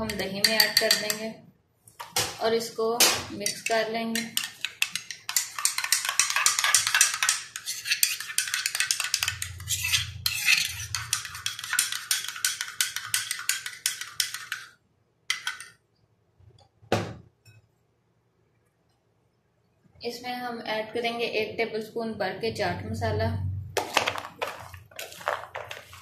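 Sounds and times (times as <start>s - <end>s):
spoon whisking in a cup: 0.0s - 1.3s, 3.4s - 15.8s, 23.8s - 26.0s.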